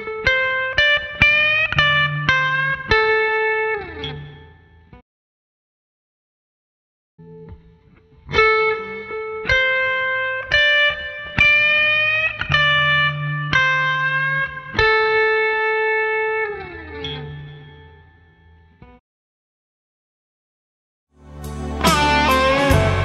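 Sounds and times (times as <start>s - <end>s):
electric guitar blues lick: 0.0s - 4.6s, 7.4s - 18.4s, 21.3s - 23.0s.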